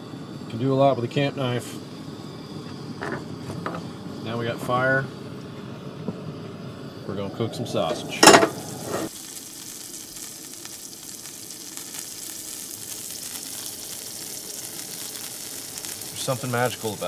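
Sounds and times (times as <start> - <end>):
sausage sizzling in a skillet: 0.0 - 17.0
sharp metallic clank: 8.2 - 8.6.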